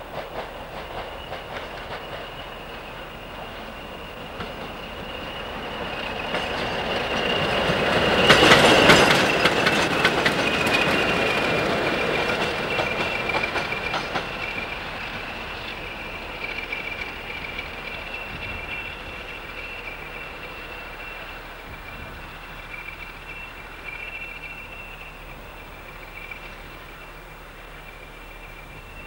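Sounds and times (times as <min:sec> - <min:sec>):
diesel locomotive engines: 0:00.0 - 0:29.0
wheels clicking over rail joints: 0:00.1 - 0:21.1
high whistle: 0:01.0 - 0:29.0.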